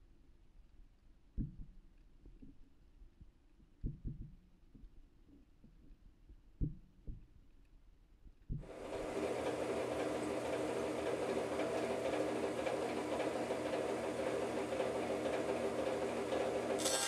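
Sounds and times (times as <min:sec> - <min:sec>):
bandsaw running: 0:08.7 - 0:17.0
bandsaw blade cutting log: 0:16.8 - 0:17.0.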